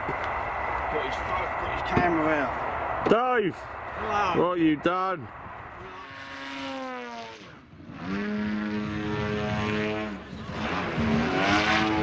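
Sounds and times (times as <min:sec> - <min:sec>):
model plane motor buzzing: 0:05.7 - 0:12.0.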